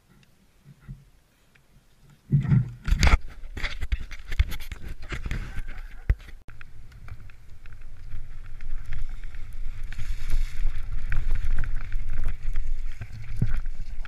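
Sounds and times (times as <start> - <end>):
bike rattling over rough ground: 2.8 - 14.0.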